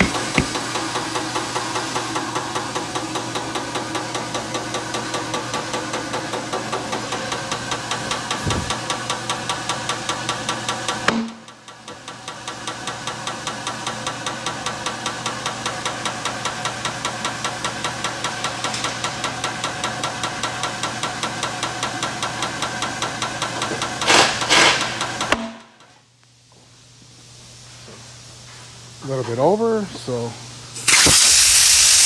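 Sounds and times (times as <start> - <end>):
tyre changer motor humming: 0.0 - 24.1.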